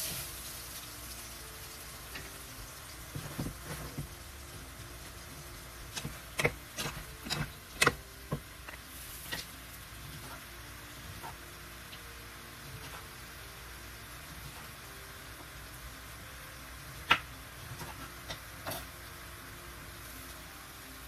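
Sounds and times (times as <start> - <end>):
shrimp sizzling in a pan: 0.0 - 21.0
wooden spatula scraping a pan: 3.1 - 4.2.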